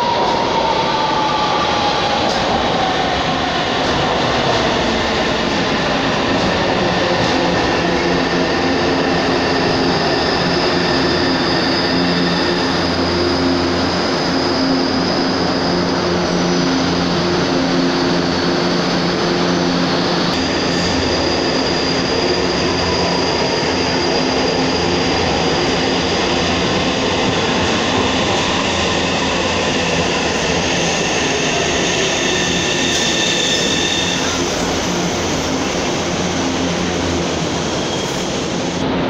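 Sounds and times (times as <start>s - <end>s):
train wheels rumbling on rail: 0.0s - 39.0s.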